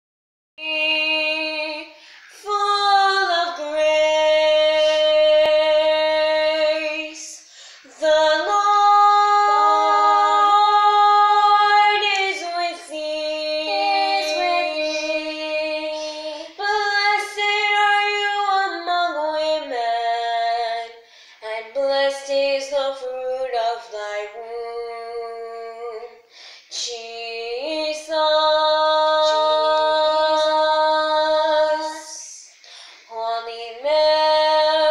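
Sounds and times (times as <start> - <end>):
girls singing unaccompanied: 0.6 - 21.0, 26.7 - 32.5, 33.4 - 34.9.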